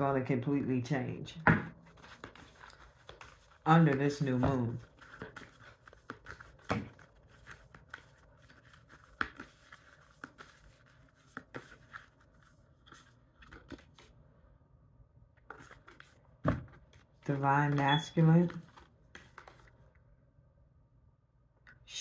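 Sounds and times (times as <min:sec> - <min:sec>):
cards being shuffled: 0:01.8 - 0:14.1, 0:15.4 - 0:19.8.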